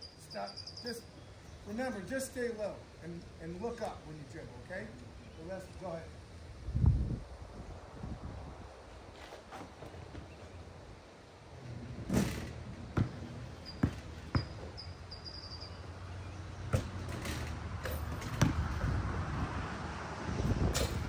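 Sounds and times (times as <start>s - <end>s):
basketballs bouncing on a court: 12.9s - 14.7s, 16.7s - 17.0s, 17.9s - 18.9s
high shoe squeaks: 13.6s - 15.8s.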